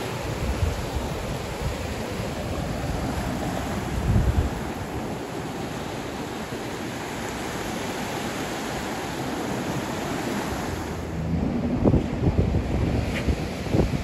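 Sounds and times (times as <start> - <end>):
wind on microphone: 0.0 - 5.9, 9.3 - 14.0
ocean surf washing ashore: 0.0 - 14.0
wind buffeting microphone thumps: 11.2 - 14.0.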